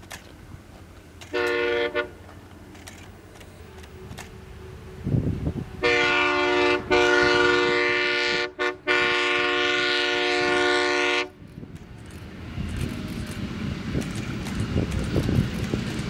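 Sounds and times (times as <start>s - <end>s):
train rumbling: 0.0s - 16.0s
locomotive air horn: 1.2s - 2.3s, 5.8s - 11.4s.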